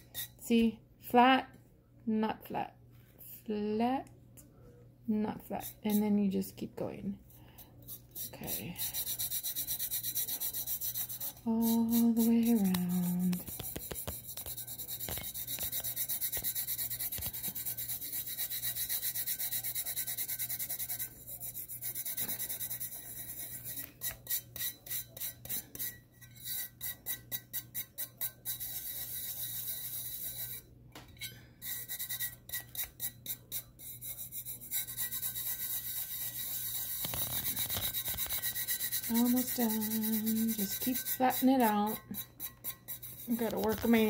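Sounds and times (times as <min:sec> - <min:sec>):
fingertips rubbing glitter: 0:07.8 - 0:25.8, 0:31.6 - 0:44.0.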